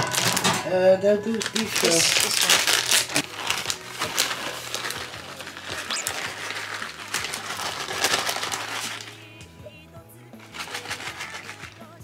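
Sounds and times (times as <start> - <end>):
plastic bag crinkling: 0.0 - 9.4, 10.4 - 12.0.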